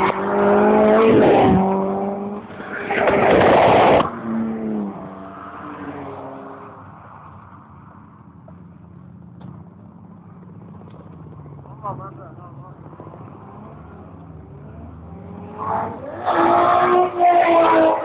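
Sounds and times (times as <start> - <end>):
race car engine revving: 0.0 - 5.1, 12.8 - 18.0
rushing burst of tyre scrub: 2.6 - 4.2.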